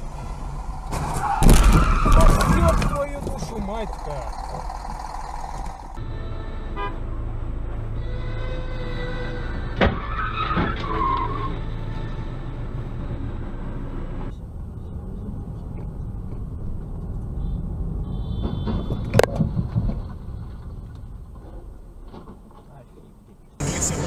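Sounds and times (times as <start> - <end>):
car crash: 0.0 - 6.0, 9.8 - 11.5
car engine and road noise: 0.0 - 24.0.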